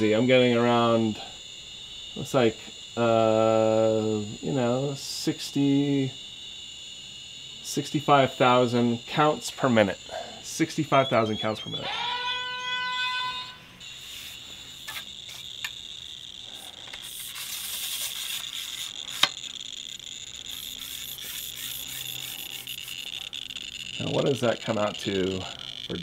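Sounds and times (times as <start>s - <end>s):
radiation detector buzz: 0.0s - 26.0s
sharp detector clicks: 14.8s - 15.9s, 16.8s - 26.0s.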